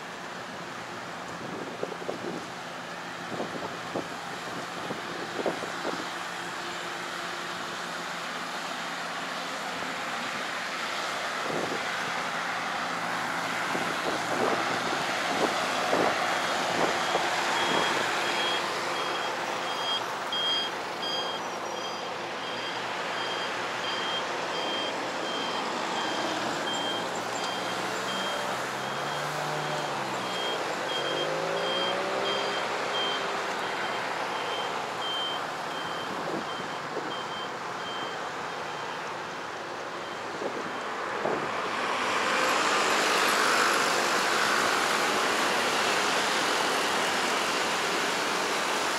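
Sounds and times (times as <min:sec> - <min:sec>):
road traffic passing: 0:00.0 - 0:48.9
passing engine: 0:10.9 - 0:48.9
high electronic beeps: 0:17.0 - 0:33.2.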